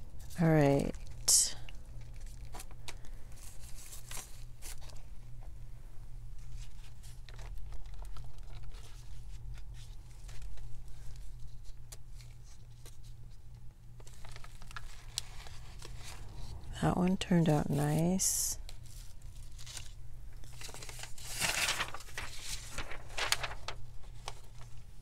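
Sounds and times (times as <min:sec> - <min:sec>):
paper and plastic rustling: 0:01.9 - 0:05.1, 0:06.4 - 0:25.0
steady low hum: 0:08.8 - 0:25.0.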